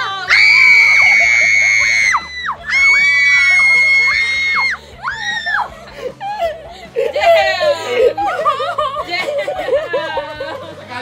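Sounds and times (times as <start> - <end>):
children screaming: 0.1 - 6.1.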